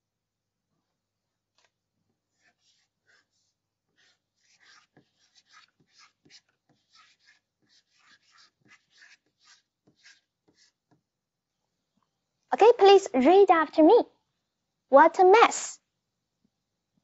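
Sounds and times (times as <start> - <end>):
chalk writing on a blackboard: 2.1 - 11.1.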